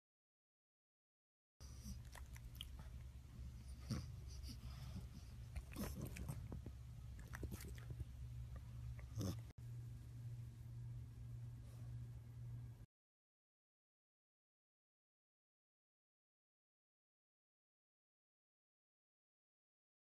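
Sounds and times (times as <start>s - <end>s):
dog sniffing and snorting: 1.6s - 8.1s, 9.0s - 9.5s
steady low hum: 1.6s - 12.9s.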